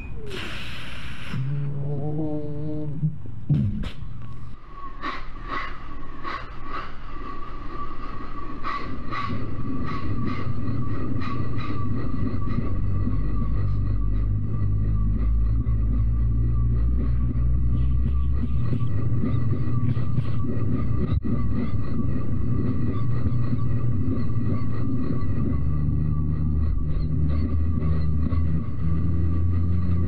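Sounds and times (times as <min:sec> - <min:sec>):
voice imitating a train: 0:01.3 - 0:03.9.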